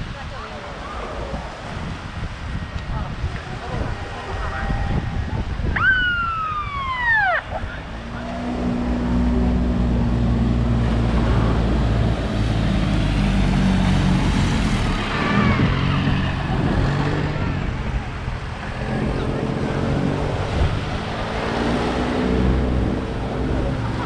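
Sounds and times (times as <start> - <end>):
siren whoop: 4.5 - 7.8.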